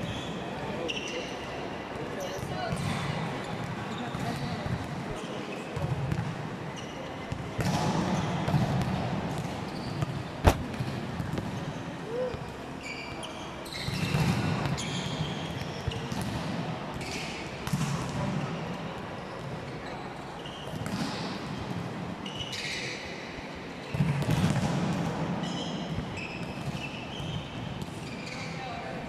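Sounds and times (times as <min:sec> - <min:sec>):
sneakers squeaking: 0:00.0 - 0:01.6, 0:02.2 - 0:18.5, 0:22.2 - 0:23.0, 0:25.4 - 0:28.8
basketball thumping on floor: 0:10.4 - 0:11.4.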